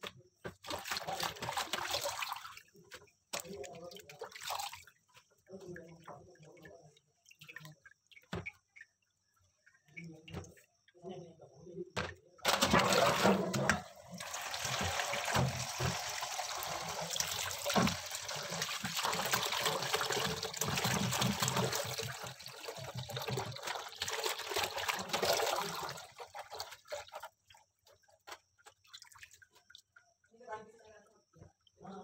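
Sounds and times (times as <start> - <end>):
small water splashes: 0.0 - 10.9, 12.4 - 30.4
tap water running into steel bowl: 12.5 - 29.7.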